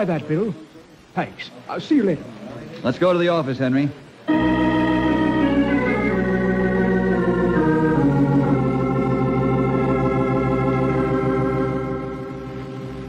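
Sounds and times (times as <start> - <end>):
sustained organ chords: 4.3 - 13.0.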